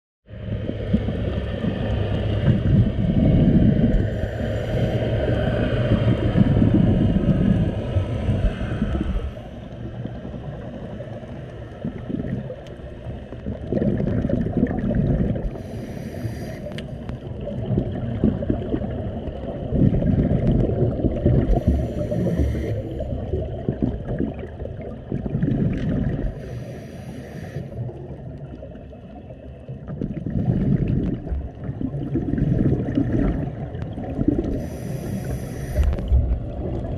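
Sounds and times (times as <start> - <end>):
exhaled bubbles rumbling underwater: 0.3 - 36.9
regulator hissing inhales: 15.6 - 17.0, 21.6 - 23.0, 26.4 - 27.8, 34.5 - 36.1.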